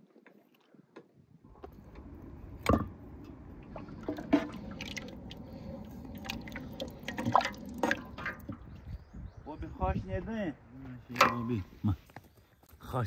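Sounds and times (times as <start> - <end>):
liquid sloshing and dripping: 1.6 - 8.9.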